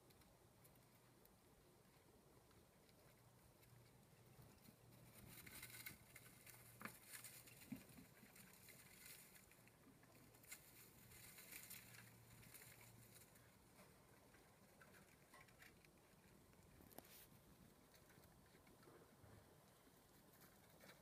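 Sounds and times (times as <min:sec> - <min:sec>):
mice pattering and scratching: 0:00.0 - 0:21.0.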